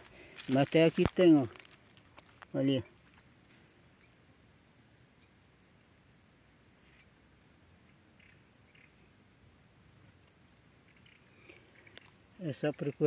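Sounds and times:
faint high-pitched chirps: 6.8 - 9.1.

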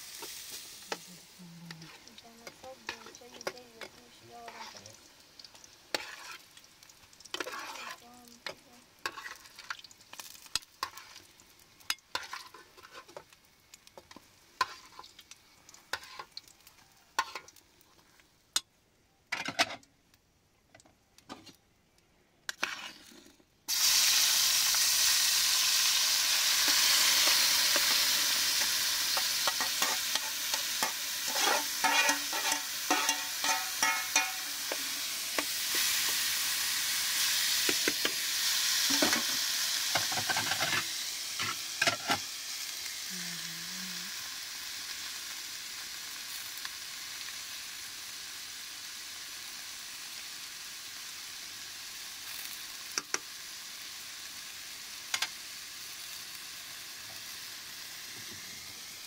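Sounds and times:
steady high hiss: 0.0 - 6.0, 23.7 - 59.0.

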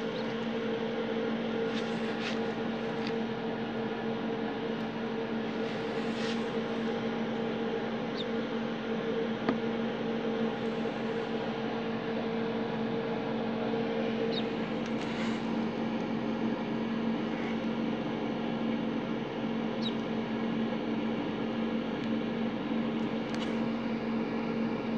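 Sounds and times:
ducklings peeping: 0.0 - 0.9, 8.0 - 8.5, 14.1 - 15.7, 19.7 - 20.2
electrical hum and hiss: 0.0 - 24.9.

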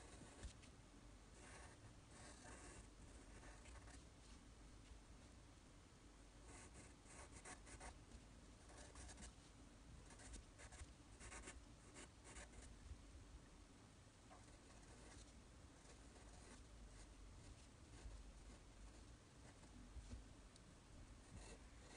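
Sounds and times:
pencil scratching on paper: 0.0 - 0.6, 1.4 - 4.0, 6.5 - 8.0, 8.7 - 9.4, 10.1 - 12.7, 14.3 - 19.7, 21.3 - 21.9.

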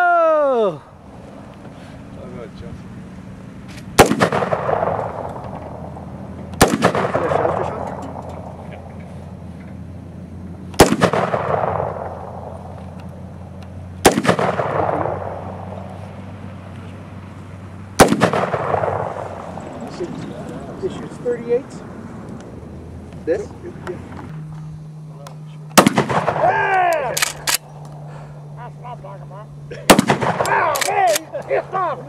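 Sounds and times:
shotgun shots with echo: 3.9 - 8.7, 10.8 - 12.8, 14.0 - 15.8, 18.0 - 19.6, 25.8 - 27.6, 29.9 - 31.1.

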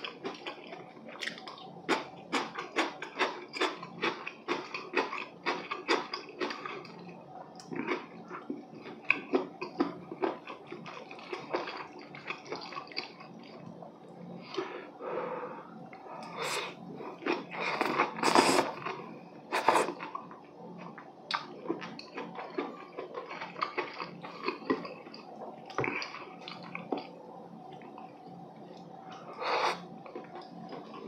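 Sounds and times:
wet chewing: 0.0 - 13.7, 16.2 - 28.1
slurping noodles: 16.2 - 20.1, 29.2 - 31.0.

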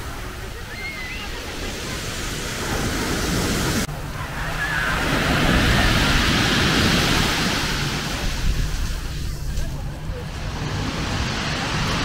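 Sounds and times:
waves washing over pebbles: 4.6 - 9.7.

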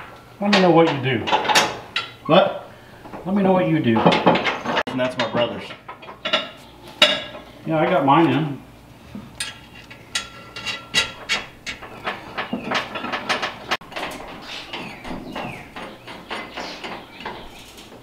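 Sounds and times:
metal bolts clinking and scraping: 3.9 - 7.5, 9.2 - 18.0.

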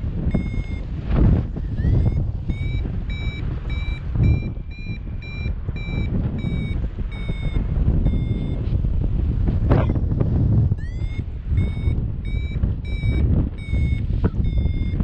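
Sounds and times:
wind on microphone: 0.0 - 15.0
variometer short high beeps: 0.2 - 8.8, 9.7 - 10.1, 10.7 - 15.0.

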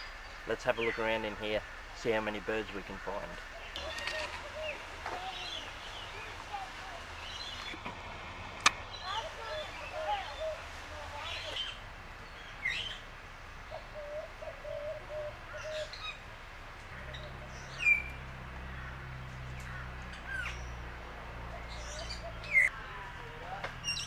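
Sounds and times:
birds chirping and calling: 0.0 - 7.8, 8.6 - 24.0
low repeated bird notes: 0.0 - 24.0.

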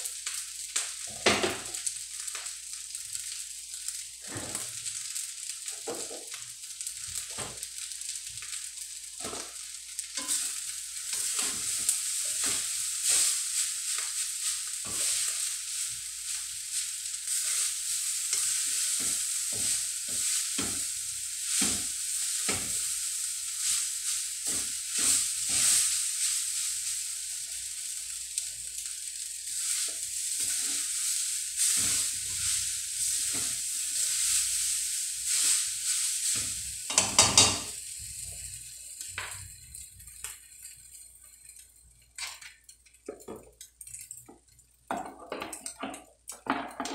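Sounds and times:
rice sizzling in a wok: 0.0 - 46.9
spatula clinking against pan: 10.2 - 10.4
spatula scraping: 10.2 - 13.4.

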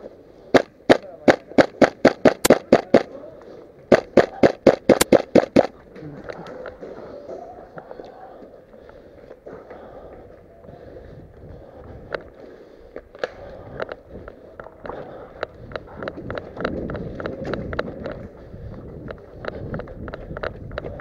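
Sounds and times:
sharp clicks: 0.5 - 3.1, 3.9 - 6.8
hurried footsteps: 3.8 - 21.0.

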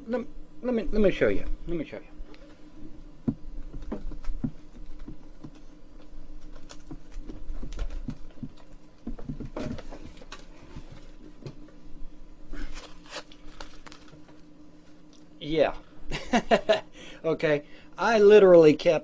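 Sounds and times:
low electrical hum: 0.0 - 19.0
knocks and rustles of handling: 2.3 - 11.8.

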